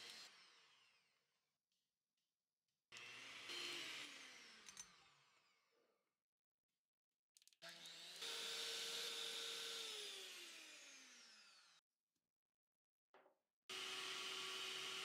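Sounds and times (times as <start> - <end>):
electric hand mixer whirring: 3.0 - 5.6, 7.7 - 11.8, 13.7 - 15.0.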